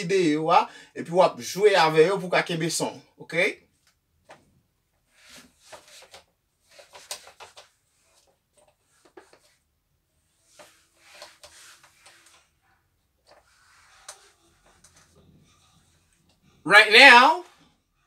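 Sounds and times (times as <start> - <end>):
eraser rubbing whiteboard: 5.1 - 9.6, 10.2 - 12.6, 13.2 - 16.2.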